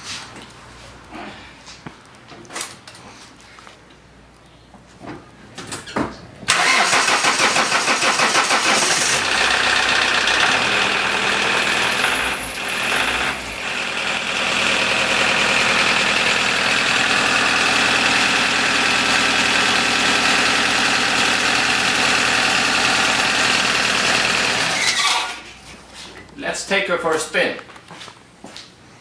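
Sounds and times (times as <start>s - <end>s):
diesel engine starting and idling: 6.5s - 25.4s.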